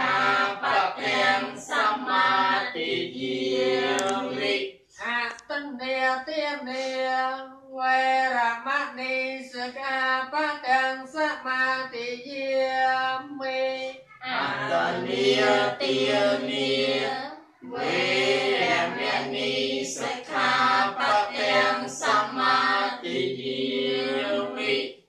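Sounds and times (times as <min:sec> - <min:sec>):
group chanting in unison: 0:00.0 - 0:04.6, 0:14.2 - 0:24.9
single voice chanting: 0:14.2 - 0:16.4.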